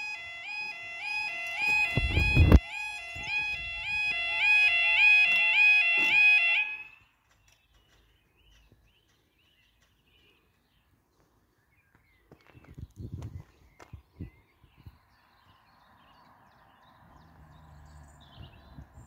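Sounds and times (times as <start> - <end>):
level crossing alarm yodel tone: 0.0 - 7.0.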